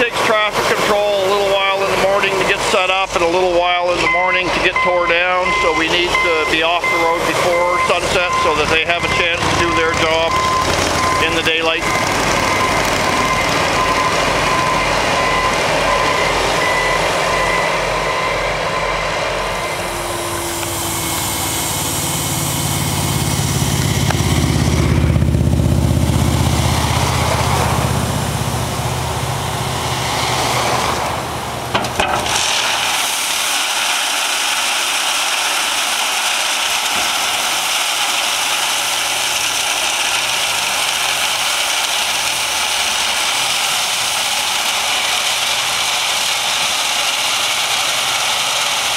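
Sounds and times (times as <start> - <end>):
dump truck diesel engine: 0.0 - 48.9
gravel pouring: 0.0 - 48.9
heavy diesel equipment running: 0.0 - 48.9
backup alarm beeping: 1.2 - 29.2
metal clank: 31.7 - 32.4.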